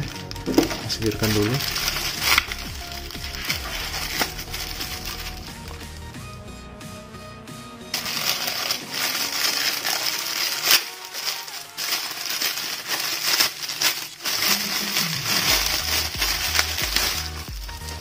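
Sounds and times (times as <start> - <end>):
plastic bag crinkling: 0.0 - 6.2, 7.9 - 18.0.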